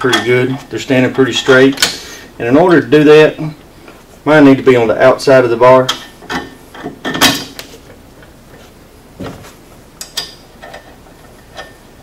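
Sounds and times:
metal hardware knocking and clicking: 5.9s - 7.6s.

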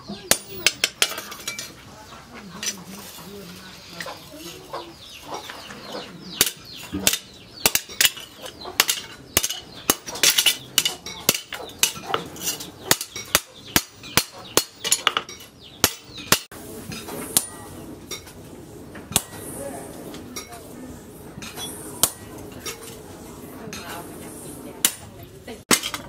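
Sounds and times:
hammer striking steel on anvil: 6.4s - 18.3s, 19.1s - 19.4s, 21.4s - 22.9s, 24.8s - 25.1s.

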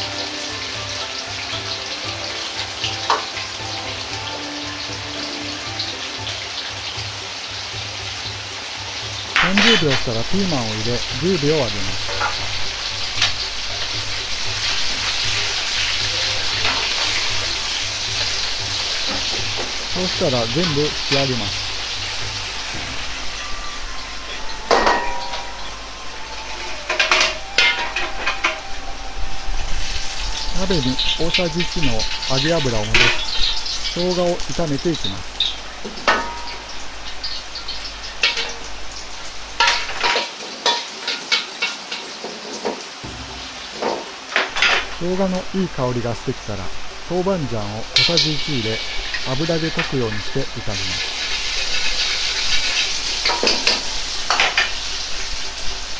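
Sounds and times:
oil sizzling: 0.0s - 55.9s
sharp crackle: 0.0s - 55.9s
low rumble: 9.8s - 40.0s
metal ladle scraping wok: 21.0s - 34.5s, 47.9s - 49.9s, 50.8s - 55.8s.

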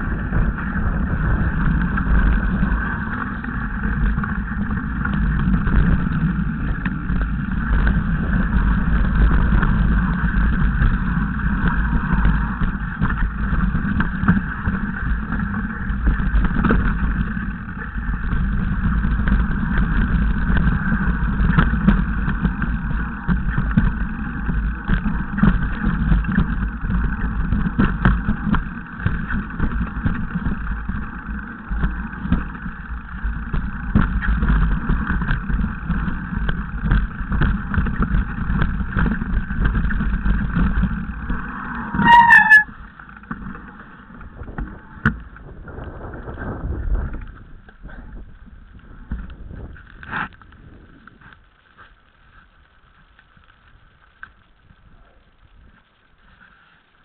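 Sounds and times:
wind rumble on microphone: 0.0s - 56.9s
bike rattling over stones: 0.0s - 57.0s.

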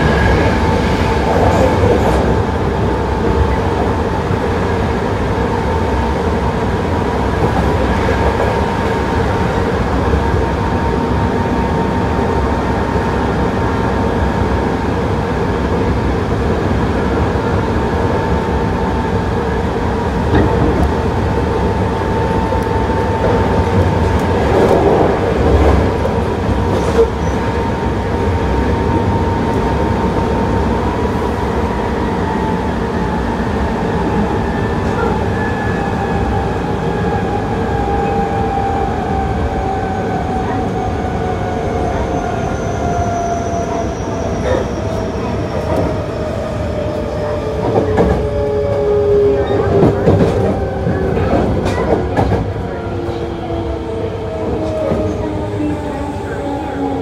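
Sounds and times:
wheels rumbling on rail: 0.0s - 57.0s.

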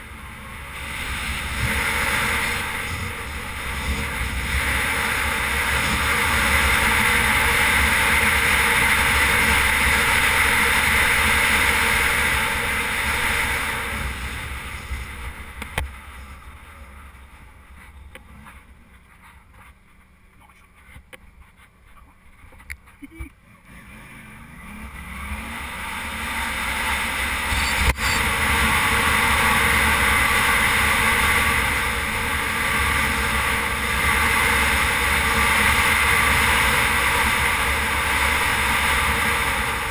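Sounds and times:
wind rushing over microphone: 0.0s - 17.7s
motorcycle engine at speed: 0.0s - 19.7s, 20.8s - 39.9s.

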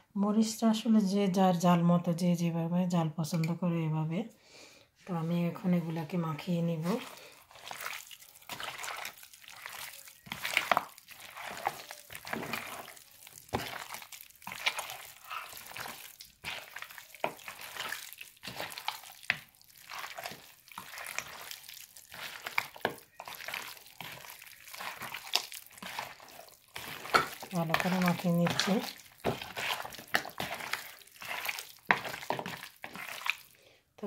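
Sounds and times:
wet meat squelching by hand: 5.9s - 33.6s.

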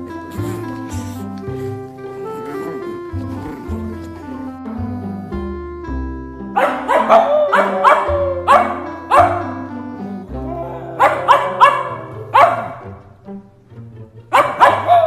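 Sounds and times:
background music: 0.0s - 15.0s
dog barking: 6.6s - 9.6s, 10.7s - 13.0s, 14.3s - 15.0s.

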